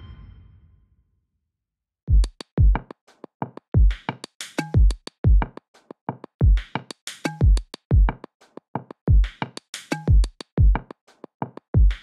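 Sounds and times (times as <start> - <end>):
deep kick drums: 2.1 - 2.8.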